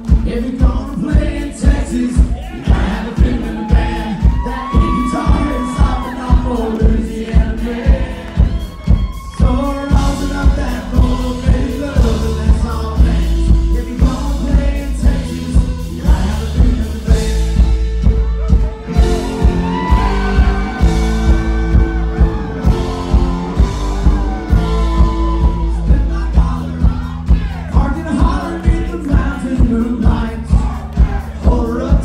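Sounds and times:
bass: 0.0s - 32.0s
drums keeping a steady beat: 0.0s - 32.0s
lead melody line: 9.4s - 27.1s.

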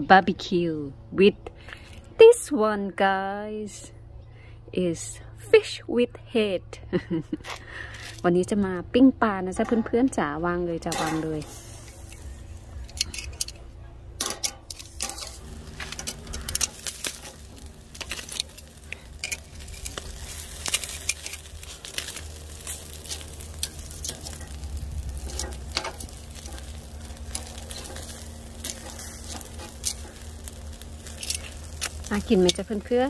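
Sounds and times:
fish sizzling on grill: 10.8s - 13.6s, 14.2s - 33.0s
tongs clinking on grate: 10.9s - 13.6s, 14.2s - 33.0s.

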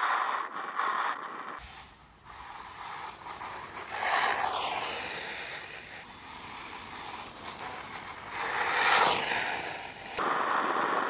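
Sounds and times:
tyres spraying gravel: 1.6s - 10.2s.

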